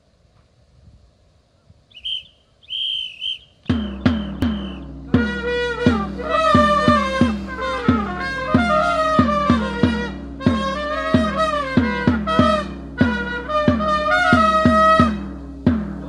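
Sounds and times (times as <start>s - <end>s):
whistle blasts: 1.9s - 15.3s
layered trumpets playing cheer song: 2.0s - 15.5s
steady drum beat: 3.1s - 16.0s
large drum strikes: 3.7s - 16.0s.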